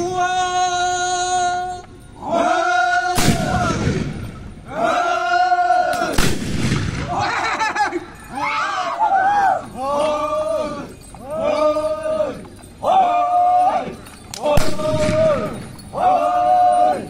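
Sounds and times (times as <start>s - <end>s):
men's group calls: 0.0s - 17.0s
black-powder guns firing: 3.2s - 4.6s, 6.0s - 7.4s, 14.5s - 15.8s.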